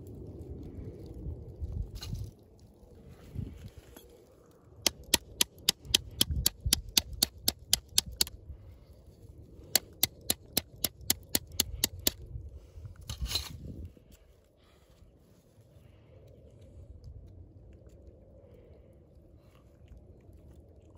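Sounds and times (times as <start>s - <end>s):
rapid sharp clicks: 4.8s - 8.3s, 9.8s - 12.2s.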